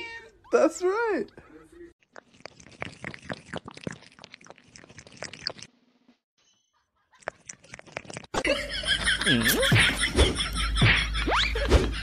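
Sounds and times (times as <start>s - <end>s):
kitten chewing food: 2.0s - 5.7s, 7.2s - 8.4s.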